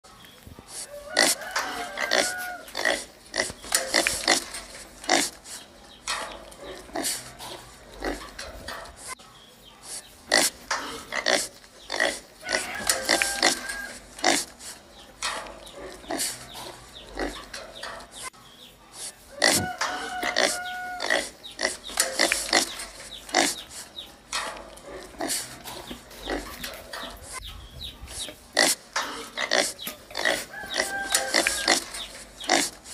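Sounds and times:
pig sniffing and snorting: 0.5s - 32.9s
pig pitched call: 12.0s - 14.4s, 19.0s - 21.4s, 29.6s - 32.7s.

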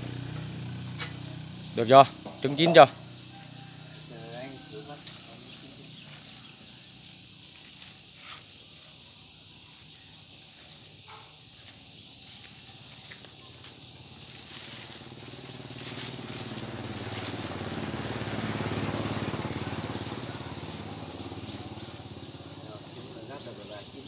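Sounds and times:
low engine rumble: 0.0s - 6.4s, 12.9s - 24.0s
high insect drone: 0.0s - 24.0s.

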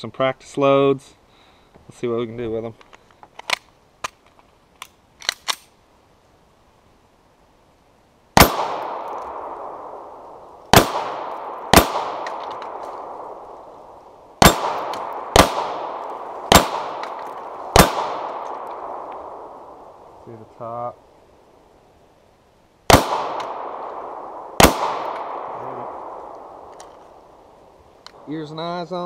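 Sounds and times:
pistol shots with echo: 8.4s - 13.5s, 14.4s - 20.0s, 22.9s - 26.7s.

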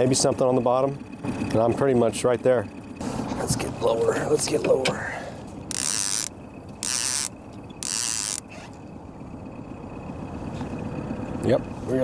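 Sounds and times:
fishing reel clicker buzzing: 5.7s - 8.5s.

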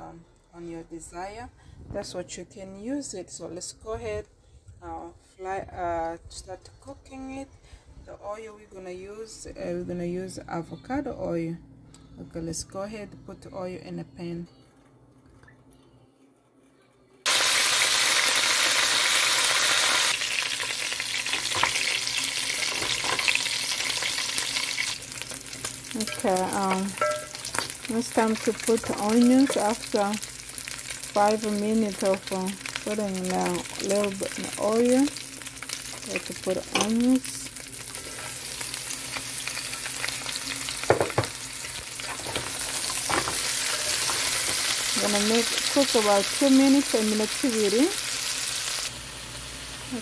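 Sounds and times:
chicken sizzling in oil: 17.3s - 50.0s
spatula stirring in pan: 26.9s - 27.6s, 37.8s - 38.5s.

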